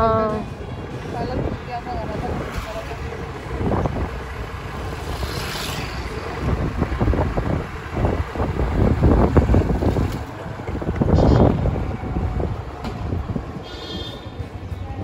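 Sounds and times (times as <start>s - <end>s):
vehicle rumbling on road: 0.0s - 15.0s
wind buffeting microphone: 6.1s - 13.6s.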